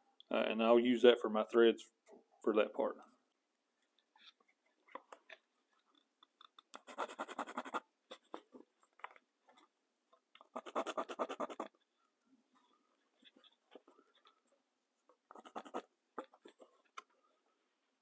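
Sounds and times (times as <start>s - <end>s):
pencil scratching on wood: 6.8s - 8.6s, 10.4s - 11.8s, 14.9s - 16.8s.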